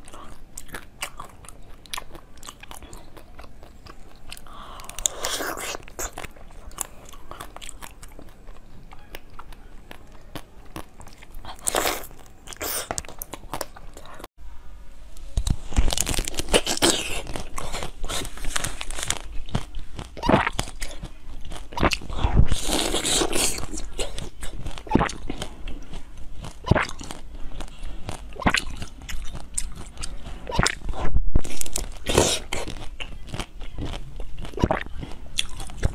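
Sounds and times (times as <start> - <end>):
chewing jelly treat: 0.0 - 14.3, 15.4 - 35.9.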